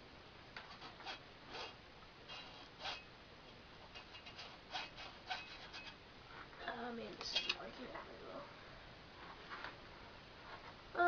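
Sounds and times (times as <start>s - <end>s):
glue gun scraping on pipe: 3.9s - 6.0s.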